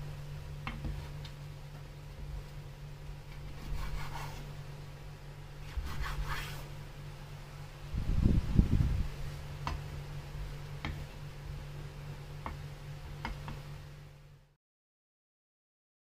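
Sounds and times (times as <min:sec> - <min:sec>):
steady low hum: 0:00.0 - 0:14.6
knife rasping through bread crust: 0:03.5 - 0:04.5.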